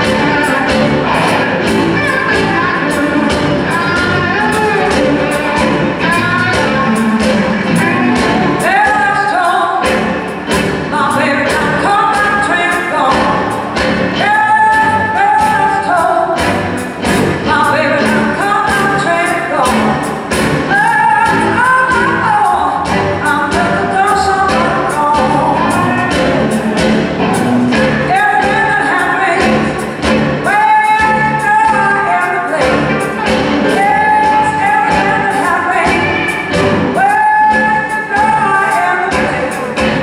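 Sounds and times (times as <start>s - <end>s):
bass guitar: 0.0s - 40.0s
drums: 0.0s - 40.0s
electric guitars: 0.0s - 40.0s
woman singing: 0.0s - 40.0s.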